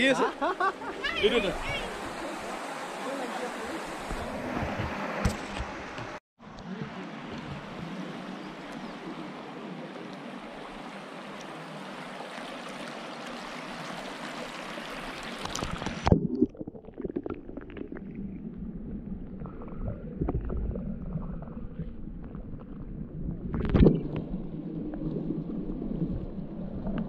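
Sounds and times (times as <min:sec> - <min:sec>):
steady outdoor hiss: 0:00.0 - 0:15.5
underwater bubbling: 0:15.0 - 0:27.0
muffled underwater rumbling: 0:15.9 - 0:27.0.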